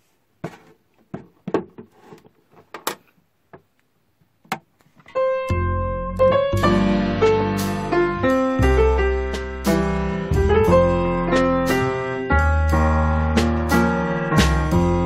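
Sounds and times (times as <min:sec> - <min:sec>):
piano music: 0:05.1 - 0:15.0.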